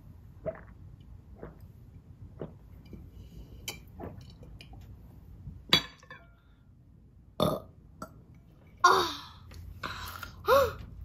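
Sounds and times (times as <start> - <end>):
child gulping water: 0.3 - 3.1, 3.8 - 4.8.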